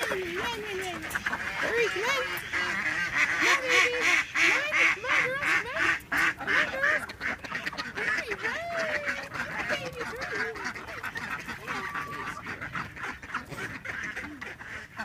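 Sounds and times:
ducks quacking: 0.0 - 15.0.

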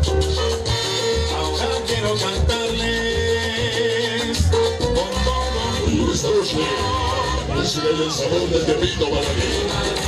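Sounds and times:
loud latin dance music: 0.0 - 10.0
person singing: 0.9 - 8.5.

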